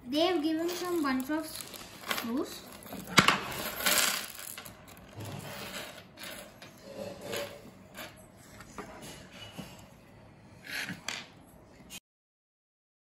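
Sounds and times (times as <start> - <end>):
screws clattering on wooden table: 0.6 - 8.2.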